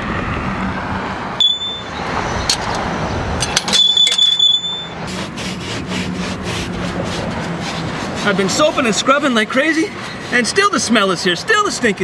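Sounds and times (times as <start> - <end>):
electronic beeps: 1.4 - 2.0, 3.8 - 5.0.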